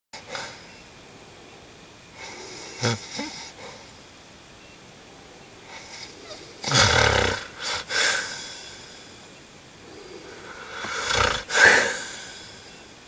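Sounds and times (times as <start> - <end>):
man snoring: 2.2 - 3.8, 5.7 - 8.6, 10.5 - 12.6.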